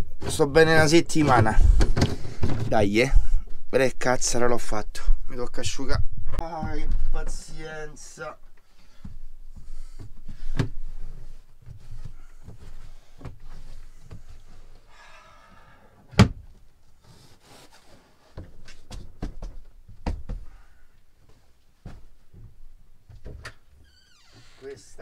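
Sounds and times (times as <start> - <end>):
knocks and rustling: 0.0 - 3.6, 18.3 - 20.5.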